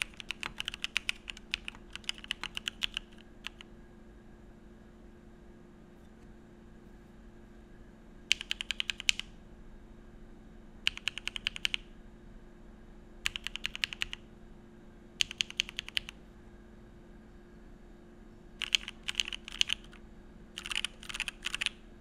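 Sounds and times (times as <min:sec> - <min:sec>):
mechanical keyboard typing: 0:00.0 - 0:03.7, 0:08.3 - 0:09.3, 0:10.8 - 0:11.9, 0:13.2 - 0:14.2, 0:15.2 - 0:16.2, 0:18.6 - 0:20.0, 0:20.6 - 0:21.8.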